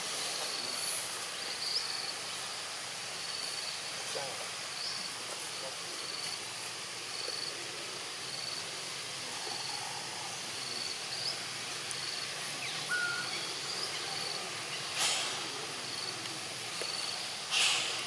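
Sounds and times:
insects hissing: 0:00.0 - 0:18.0
whistle-like call: 0:12.9 - 0:13.4.

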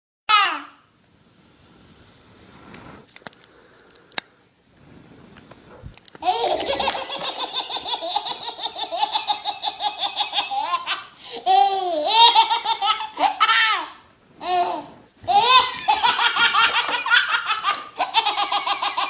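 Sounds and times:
person laughing hard: 0:06.2 - 0:10.8, 0:15.3 - 0:19.0.

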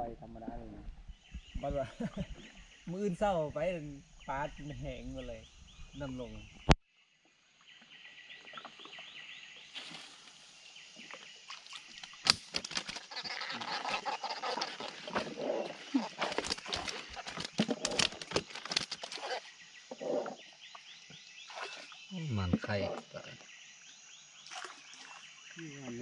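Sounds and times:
insects chirping: 0:00.0 - 0:26.0
fish splashing and thrashing: 0:11.1 - 0:19.5.

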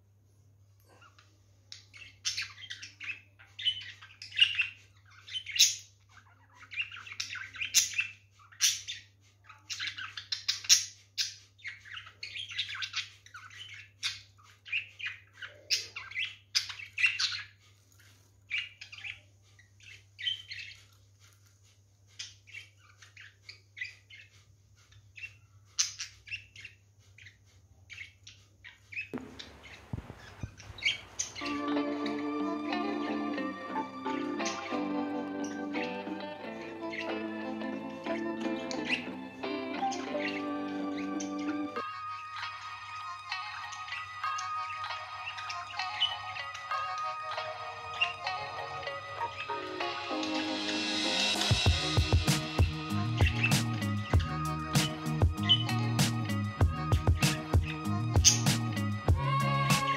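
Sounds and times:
budgerigars chirping: 0:01.8 - 0:17.6, 0:18.5 - 0:20.8, 0:24.9 - 0:59.9
music: 0:31.4 - 0:59.9.

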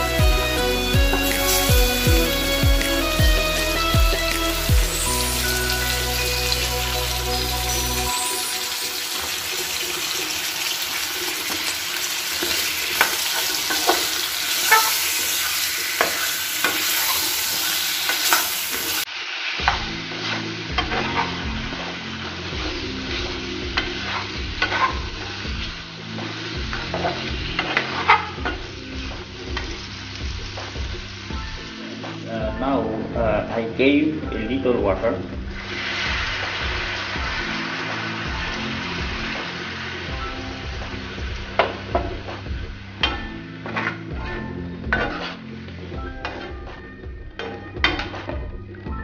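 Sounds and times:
food sizzling in oil: 0:00.0 - 0:32.3, 0:35.2 - 0:48.3
metal spoon scraping a pan: 0:08.3 - 0:19.0.

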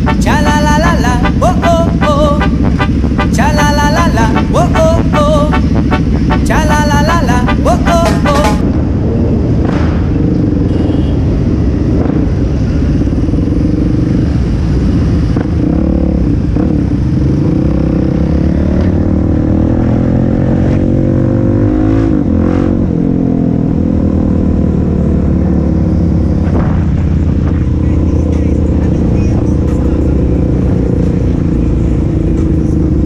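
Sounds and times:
motorcycle engine running: 0:00.0 - 0:33.0.

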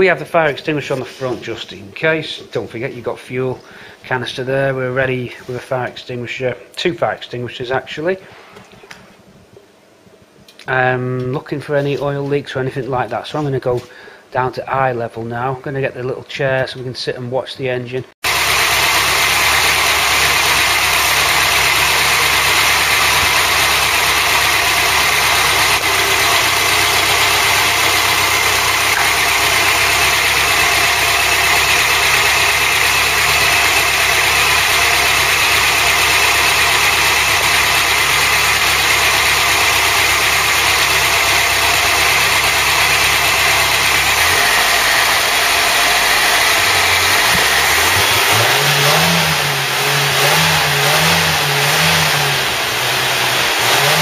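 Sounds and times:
car engine idling: 0:18.2 - 0:54.0.

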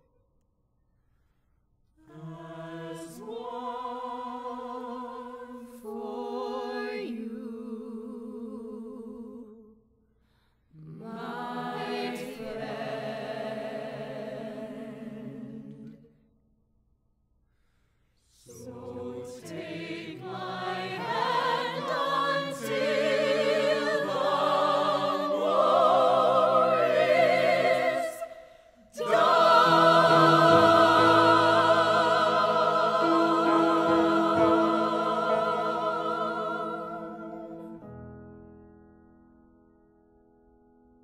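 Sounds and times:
cast singing together: 0:02.0 - 0:09.6, 0:10.8 - 0:16.1, 0:18.4 - 0:37.8.

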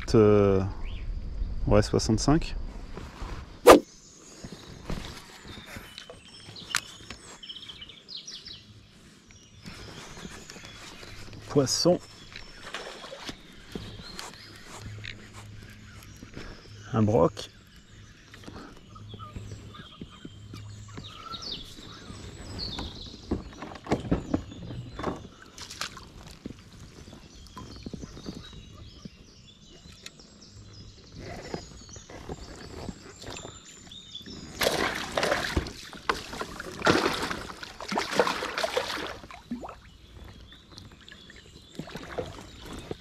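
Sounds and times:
water splashing and sloshing: 0:09.6 - 0:16.6, 0:19.2 - 0:28.6, 0:31.5 - 0:43.0.

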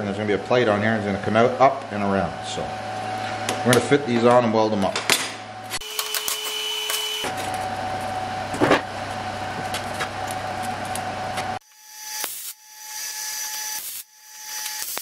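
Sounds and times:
workshop machine hum: 0:00.0 - 0:11.6.

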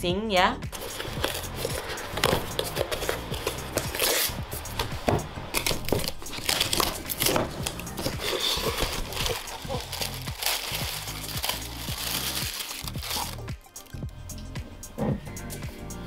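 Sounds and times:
packaging rustling: 0:00.7 - 0:13.9
cardboard box tearing: 0:00.8 - 0:04.8, 0:05.5 - 0:13.5.

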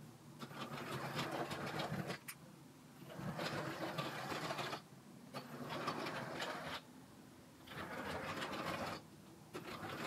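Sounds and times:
toy train motor whirring rattle: 0:00.4 - 0:02.2, 0:03.1 - 0:04.8, 0:05.4 - 0:06.8, 0:07.7 - 0:09.0, 0:09.6 - 0:10.0.

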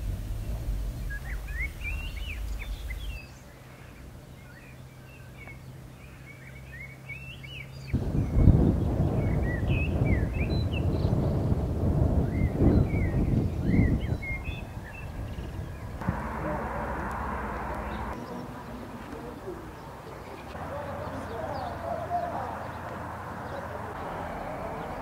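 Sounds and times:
small birds chirping: 0:00.0 - 0:25.0
wind on microphone: 0:07.9 - 0:18.3.

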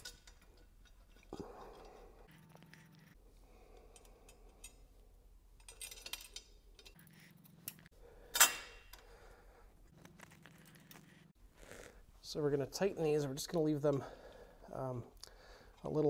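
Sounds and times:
small metal bolts clinking: 0:05.6 - 0:07.0.

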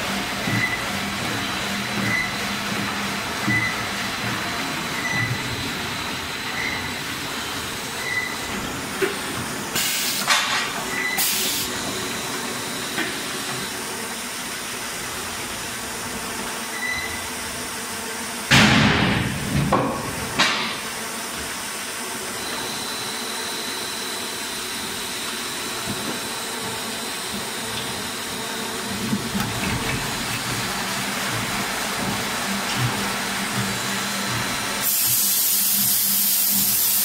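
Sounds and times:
machine noise with hiss: 0:00.0 - 0:14.7, 0:29.4 - 0:37.0
loud blasts of hiss: 0:09.8 - 0:10.4, 0:11.2 - 0:11.8, 0:34.8 - 0:37.0.

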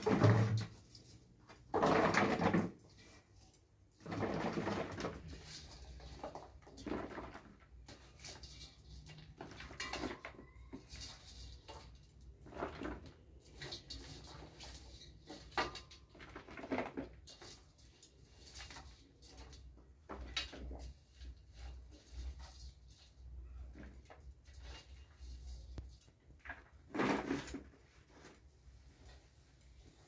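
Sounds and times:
vegetables clinking in steel bowl: 0:04.0 - 0:23.3.

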